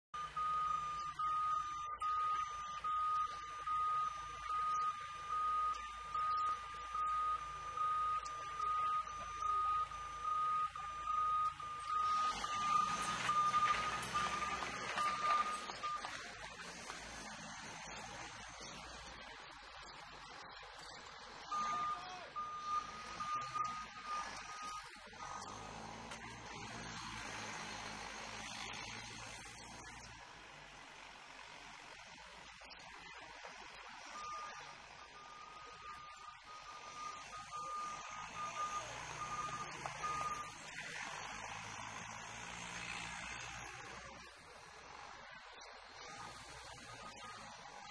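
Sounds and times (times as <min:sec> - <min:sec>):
forklift warning beeper: 0:00.2 - 0:16.2, 0:21.5 - 0:26.4, 0:34.1 - 0:43.0
low engine hum: 0:00.2 - 0:47.9.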